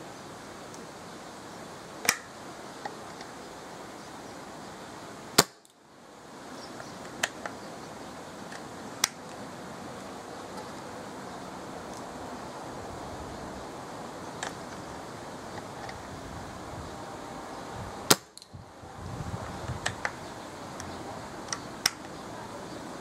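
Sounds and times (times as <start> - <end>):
airgun firing sharp cracks: 5.4 - 5.7, 18.1 - 18.4
wind noise on microphone: 6.3 - 23.0.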